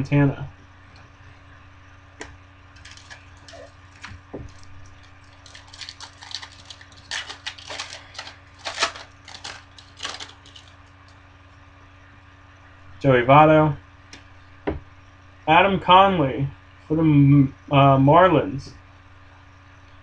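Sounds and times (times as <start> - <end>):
foil card pack crinkling: 2.8 - 11.2.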